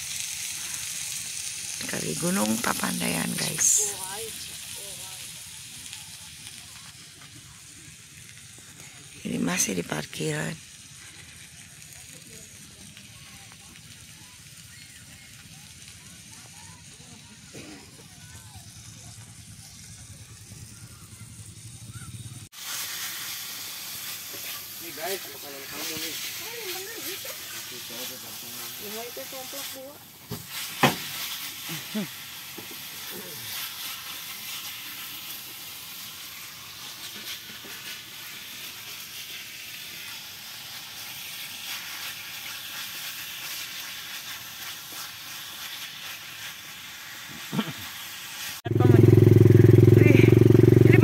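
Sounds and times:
food sizzling in a wok: 0.0s - 51.0s
low steady rumble: 48.7s - 51.0s.

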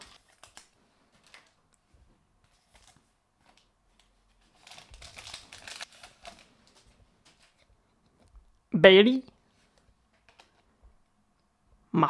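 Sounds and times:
wrapper crinkling and tearing: 0.0s - 1.6s, 4.4s - 7.7s.

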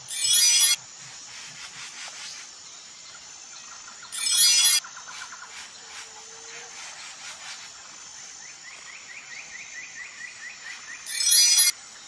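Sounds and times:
small bird chirping rapidly: 0.0s - 0.8s, 3.9s - 5.7s, 10.6s - 11.7s.

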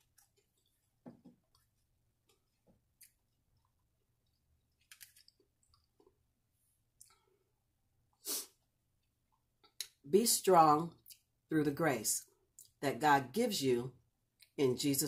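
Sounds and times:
short hiss: 8.2s - 8.5s.

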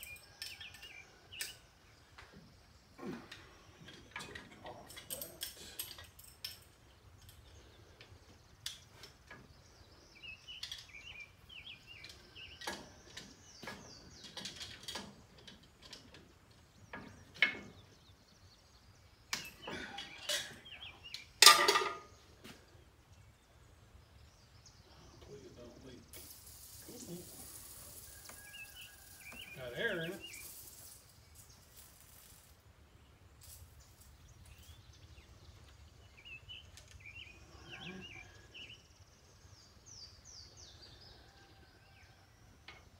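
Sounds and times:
metal tools clinking and knocking: 3.3s - 7.6s, 21.4s - 22.1s.

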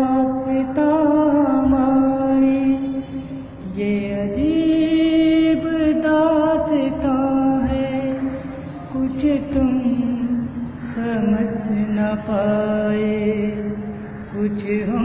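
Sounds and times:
man singing unaccompanied: 0.0s - 15.0s.

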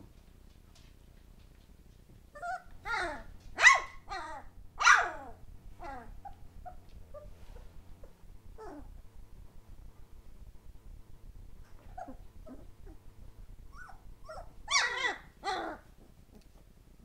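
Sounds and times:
puppies yapping: 2.4s - 7.3s, 13.7s - 15.9s
faint puppy squeaks: 2.4s - 9.0s, 11.6s - 13.0s, 13.7s - 15.8s.

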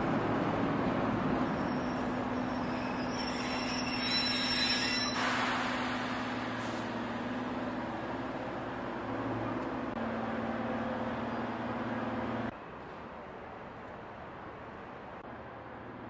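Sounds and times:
train rumbling past: 0.0s - 12.5s
wheels squealing: 1.4s - 7.1s.

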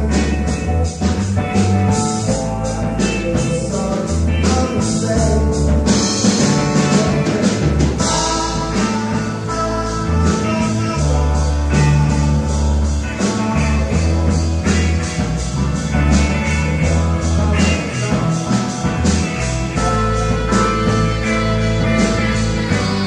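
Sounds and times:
man singing: 0.0s - 1.2s, 1.9s - 15.2s, 16.0s - 21.0s
psychedelic rock band playing: 0.0s - 23.0s.

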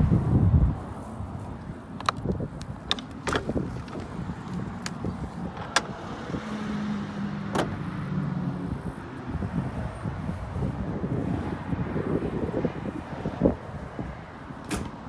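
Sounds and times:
metal latch clicks and clanks: 2.8s - 4.0s, 5.6s - 5.9s, 14.6s - 15.0s.

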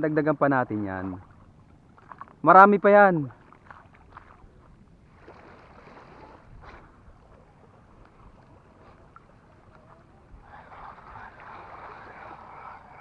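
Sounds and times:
small waves lapping: 0.0s - 13.0s
wind noise on microphone: 6.1s - 7.1s.

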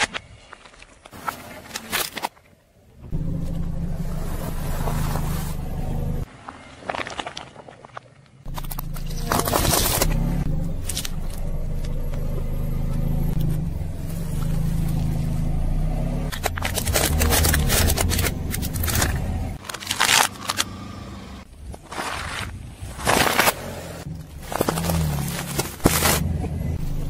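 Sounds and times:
car engine running: 3.0s - 6.3s, 8.5s - 21.6s, 23.3s - 27.0s
tyre crushing objects: 16.3s - 20.7s, 21.6s - 26.5s.

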